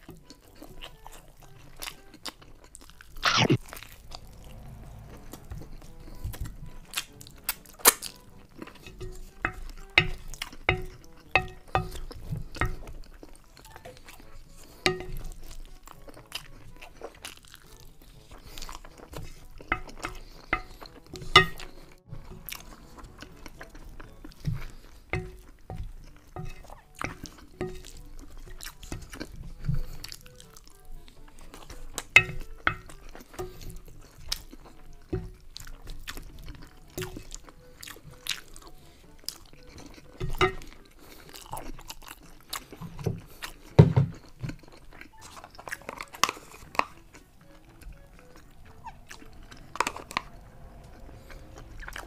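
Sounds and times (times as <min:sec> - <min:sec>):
wet smacks and clicks: 0:00.0 - 0:04.0
mouth chewing: 0:00.0 - 0:52.0
wooden spoon scraping a plate: 0:03.7 - 0:13.4, 0:17.6 - 0:39.0.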